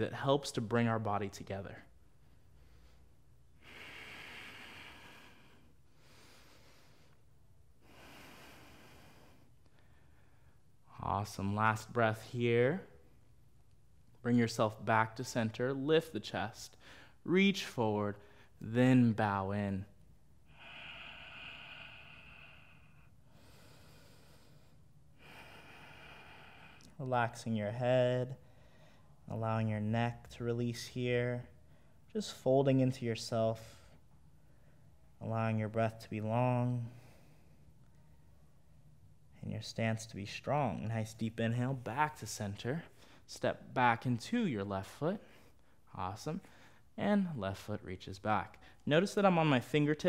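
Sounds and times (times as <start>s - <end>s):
faint slow breathing: 1.8s - 10.8s, 16.7s - 17.3s, 20.4s - 27.0s, 28.3s - 29.3s, 36.4s - 38.9s, 42.8s - 43.3s, 45.2s - 47.0s.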